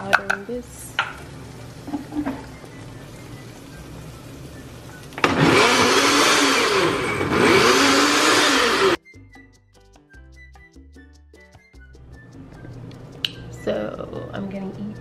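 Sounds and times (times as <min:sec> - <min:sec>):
blender motor blending: 0:05.2 - 0:09.0.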